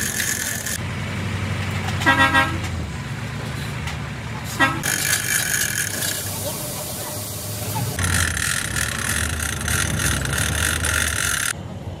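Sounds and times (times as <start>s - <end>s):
vehicle horn tooting: 2.0s - 2.6s.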